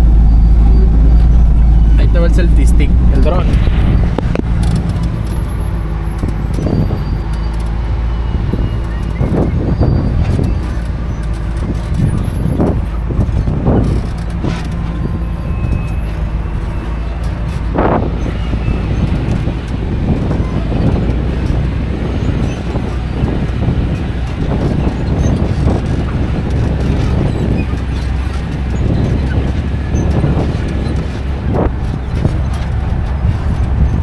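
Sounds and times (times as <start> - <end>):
off-road vehicle engine droning: 0.0 - 34.0
brief rushes of noise: 2.0 - 5.3.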